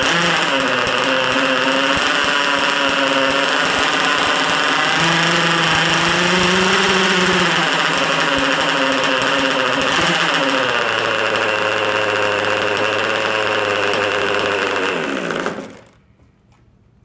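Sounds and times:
model boat engine running: 0.0s - 16.0s.

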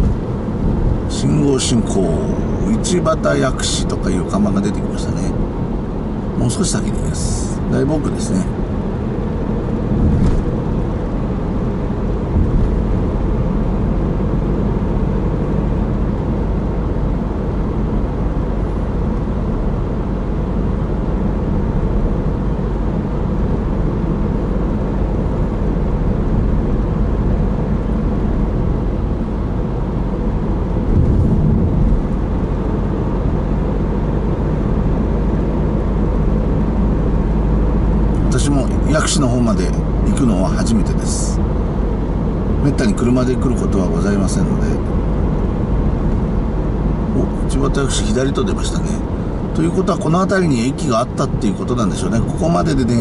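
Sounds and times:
car engine and tyres rumbling: 0.0s - 53.0s
car bump: 9.9s - 10.8s, 12.3s - 13.1s.

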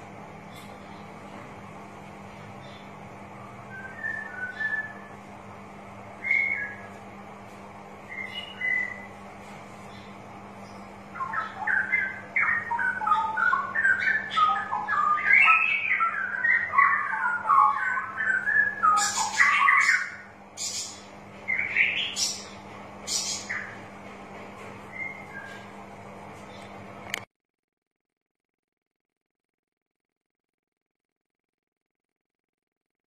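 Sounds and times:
bulbul singing: 2.6s - 5.2s, 6.1s - 7.0s, 8.0s - 9.2s, 9.8s - 23.9s.

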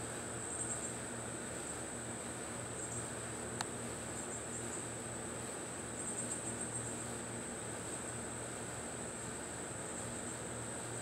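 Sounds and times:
insects trilling: 5.9s - 7.4s.

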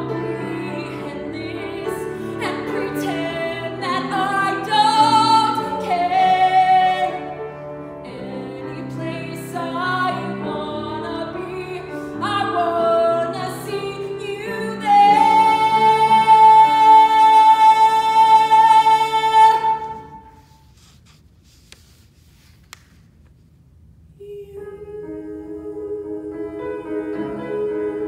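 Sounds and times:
woman singing ballad: 0.0s - 7.3s, 8.1s - 20.0s
grand piano: 0.0s - 21.6s, 23.4s - 28.0s.

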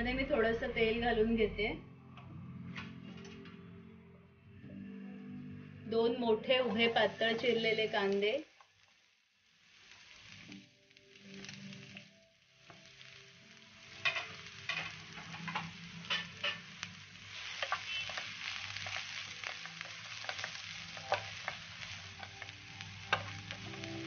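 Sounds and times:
onions sizzling in oil: 6.6s - 24.0s
wooden spatula scraping a pan: 14.0s - 22.5s.

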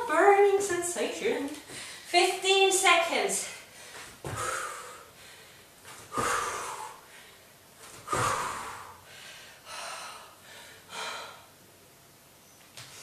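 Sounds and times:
woman exhaling forcefully: 4.2s - 5.1s, 6.1s - 7.1s, 8.0s - 11.5s
low thuds of landing: 7.8s - 8.6s.

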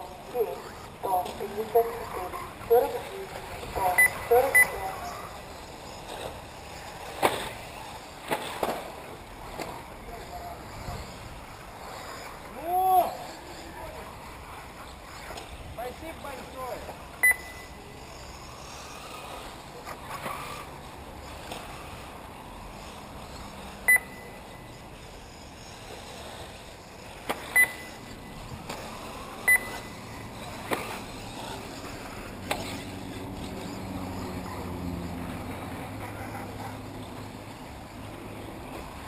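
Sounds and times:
outdoor background noise: 0.0s - 39.0s
short electronic beeps: 3.9s - 4.8s, 17.2s - 17.8s, 23.8s - 24.6s, 27.5s - 28.0s, 29.4s - 30.0s.

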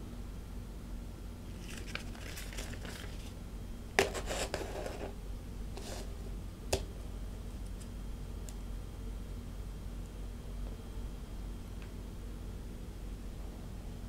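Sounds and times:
paper rustling: 1.5s - 3.4s, 4.0s - 5.1s.

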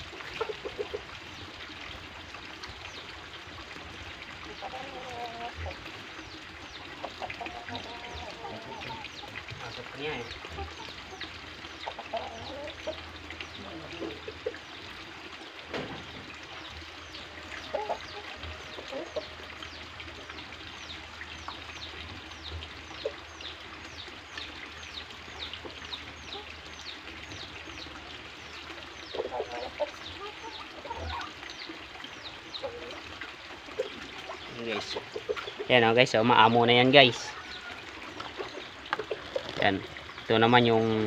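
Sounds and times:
roosters clucking: 0.0s - 1.6s, 4.4s - 23.6s, 28.5s - 31.6s, 32.2s - 40.2s.

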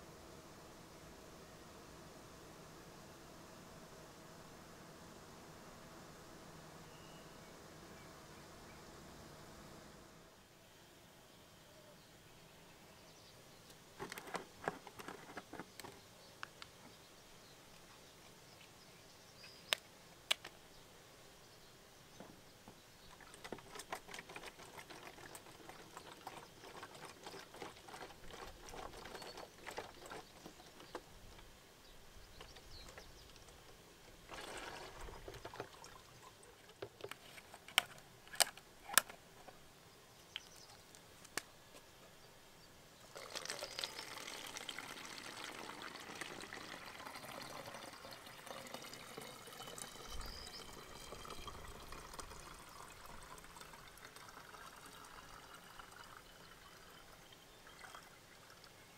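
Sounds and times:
water pouring through funnel: 23.0s - 31.0s, 34.2s - 36.9s, 43.0s - 58.9s
liquid pouring into plastic bottle: 23.1s - 31.0s, 34.3s - 37.0s, 43.1s - 58.8s.

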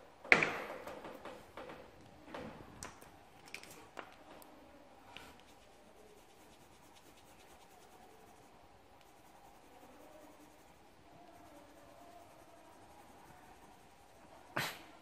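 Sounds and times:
colored pencil scratching on paper: 5.2s - 14.6s.

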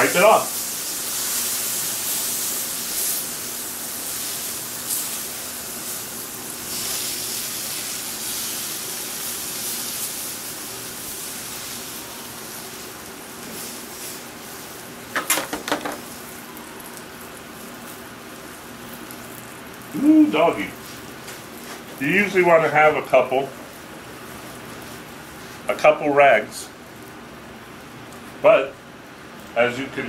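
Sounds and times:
water sizzling on hot griddle: 0.0s - 30.0s
clatter of sharp knocks: 15.2s - 16.0s.

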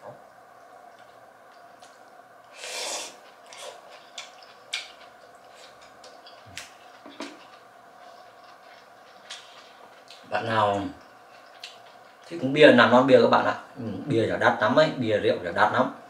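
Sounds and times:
sharp intake of breath: 2.5s - 3.2s.

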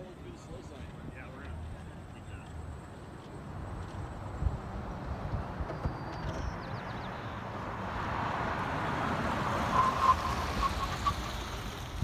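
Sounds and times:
pickup truck passing by: 2.8s - 12.0s.

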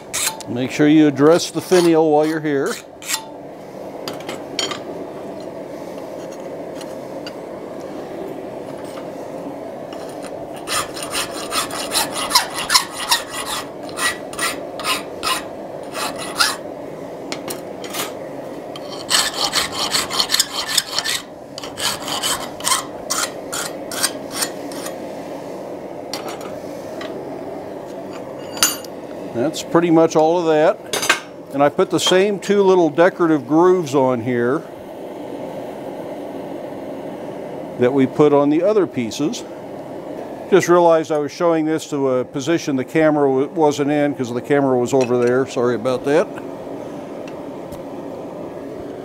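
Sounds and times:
hand file rasping on metal: 10.6s - 16.6s, 18.8s - 25.0s.

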